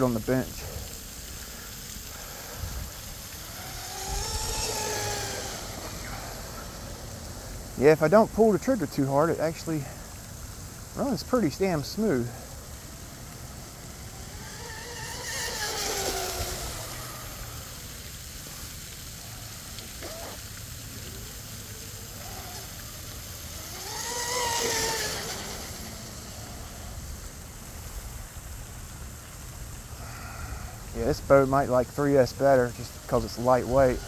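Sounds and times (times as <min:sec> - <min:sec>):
water hissing: 0:00.0 - 0:34.0
model boat motor whine: 0:02.0 - 0:09.8, 0:10.4 - 0:28.7.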